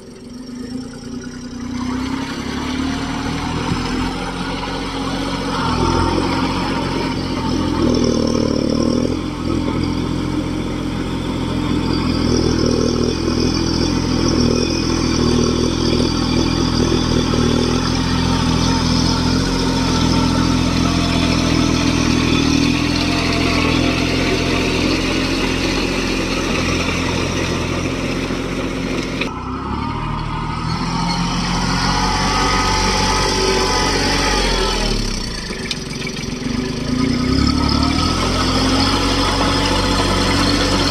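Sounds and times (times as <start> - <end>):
diesel tractor engine running: 0.0 - 40.9.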